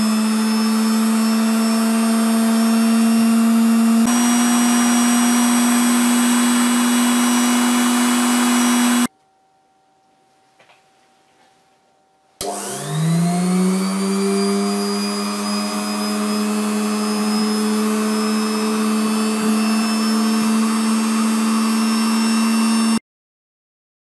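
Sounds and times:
drilling machine motor whine: 0.0 - 9.1, 12.4 - 23.0.

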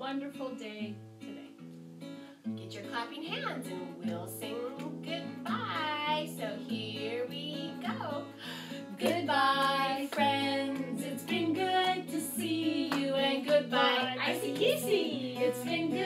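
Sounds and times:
strummed acoustic guitar: 0.9 - 16.0
women singing: 4.0 - 16.0.

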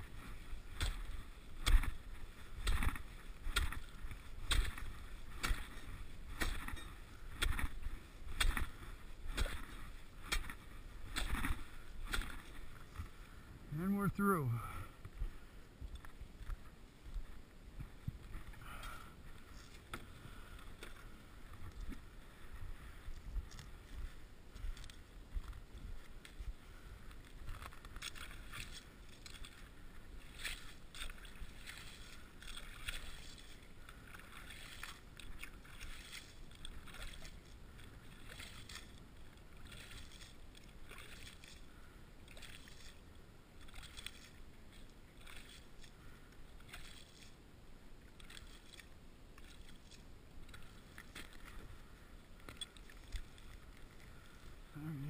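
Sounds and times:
ice skimmer scraping and sloshing: 0.0 - 13.1.

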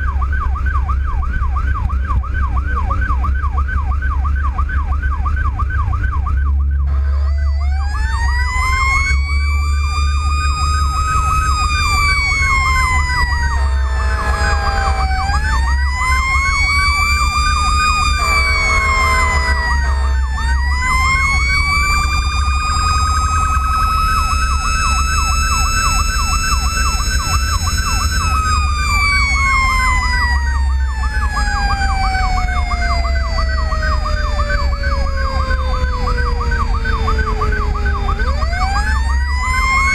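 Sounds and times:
electronic siren yelping: 0.0 - 39.9
truck engine and road noise: 0.0 - 39.9
truck horn blasts: 6.8 - 7.8, 13.2 - 15.8, 17.6 - 23.9
mechanical siren winding: 6.9 - 39.9.

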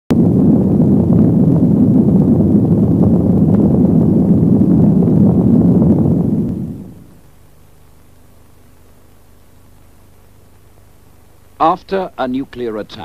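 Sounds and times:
explosion low rumble: 0.1 - 7.2.

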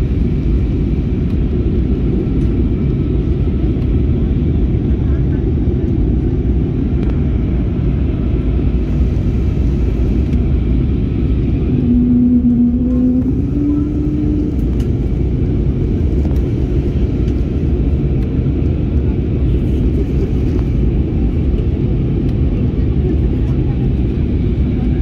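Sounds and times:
airliner cabin rumble: 0.0 - 25.0
humming tone rising in pitch: 11.6 - 15.0.

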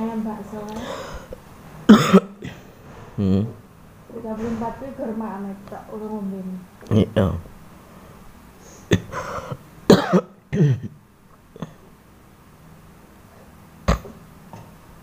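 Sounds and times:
person coughing: 1.9 - 2.7, 8.9 - 11.0.

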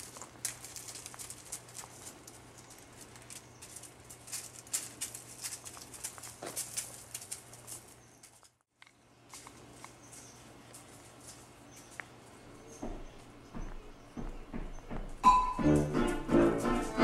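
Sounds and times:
light footsteps on hard surface: 9.3 - 17.0.

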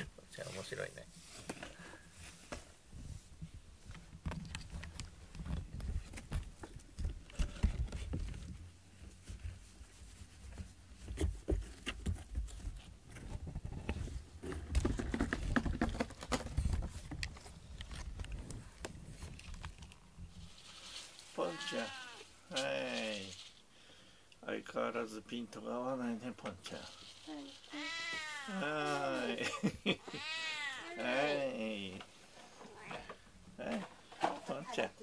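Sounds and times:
cat rustling on cardboard scratcher: 20.3 - 22.4.

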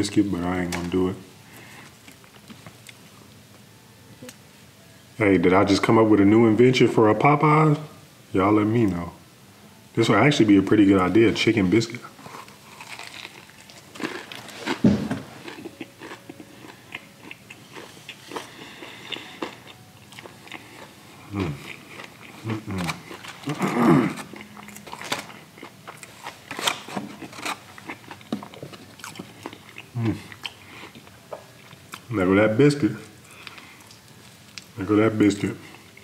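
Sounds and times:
crunching and chewing: 12.2 - 32.1, 33.0 - 34.8
vocal mouth sounds: 21.2 - 24.8.

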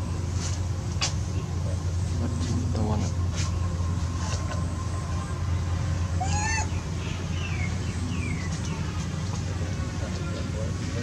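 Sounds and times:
steady low hum: 0.0 - 11.0
monkey squealing: 6.2 - 6.8
monkey chirping: 6.2 - 8.6.

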